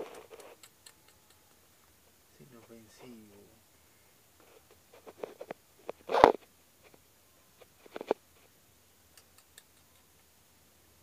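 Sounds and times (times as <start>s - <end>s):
faint ticks: 0.0s - 1.6s, 9.1s - 10.2s.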